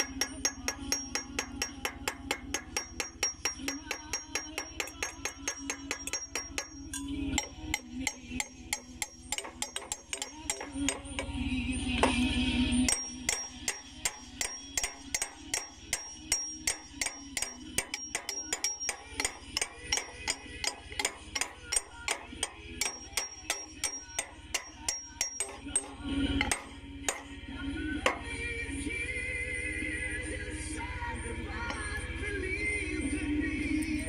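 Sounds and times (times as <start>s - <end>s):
hammer blows on steel: 12.9s - 27.4s.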